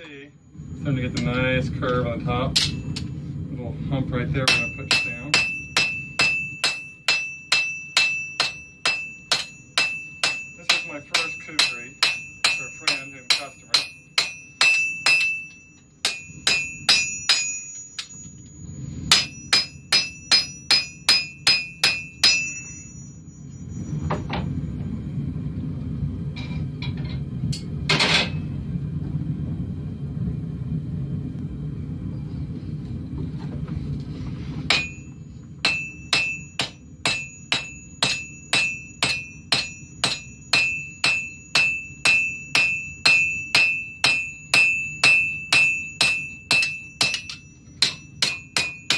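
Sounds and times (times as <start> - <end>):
low rumble: 0.1 - 48.9
hammer striking steel on anvil: 1.1 - 3.1, 4.4 - 18.4, 19.0 - 23.2, 34.7 - 48.9.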